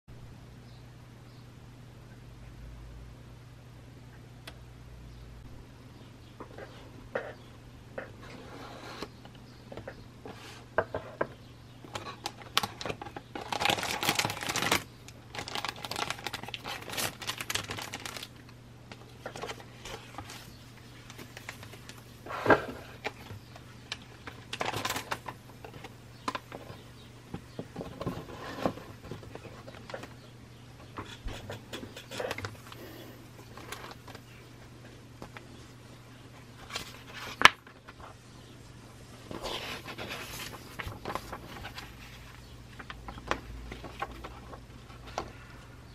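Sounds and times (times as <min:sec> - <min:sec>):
paper booklet rustling: 0:12.0 - 0:26.8, 0:36.6 - 0:38.2, 0:39.3 - 0:45.5.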